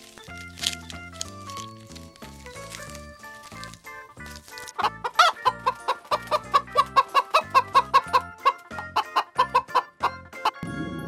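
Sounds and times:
hens clucking: 2.5s - 10.6s.

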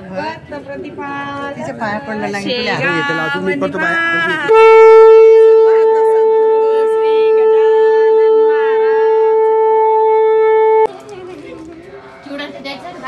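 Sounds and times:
faint voices talking: 0.0s - 13.0s
conch shell blown: 4.2s - 10.9s.

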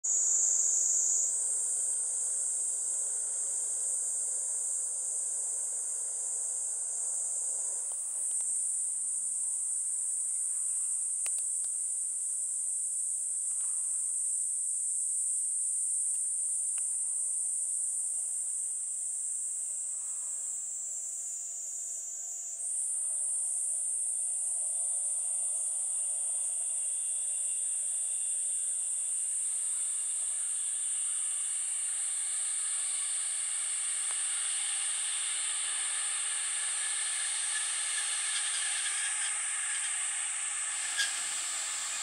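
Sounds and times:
insects droning: 0.0s - 42.0s
faint ticks: 7.8s - 8.6s, 10.6s - 11.9s, 16.0s - 17.1s, 33.9s - 34.8s.

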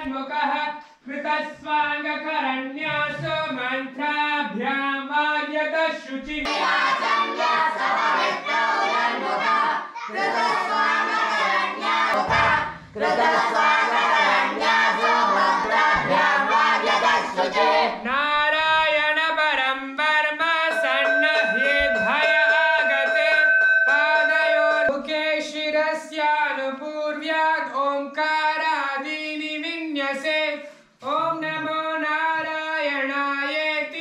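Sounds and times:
voices chanting in unison: 6.5s - 18.0s.

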